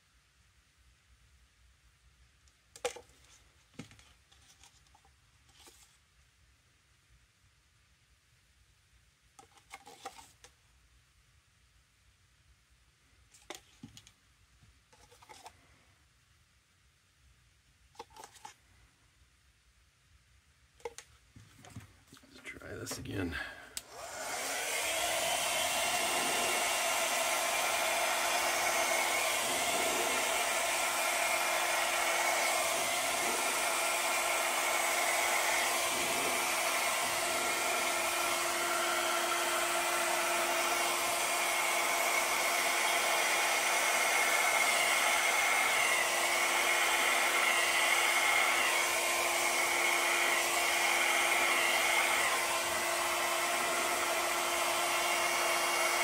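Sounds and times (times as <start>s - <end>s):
hair dryer running: 23.8s - 56.0s.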